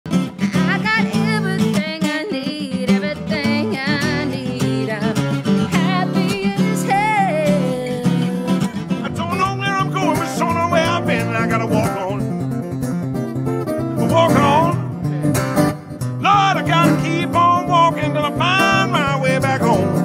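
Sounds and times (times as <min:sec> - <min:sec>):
acoustic guitar strumming: 0:00.1 - 0:20.0
woman singing blues: 0:00.5 - 0:12.2, 0:16.2 - 0:20.0.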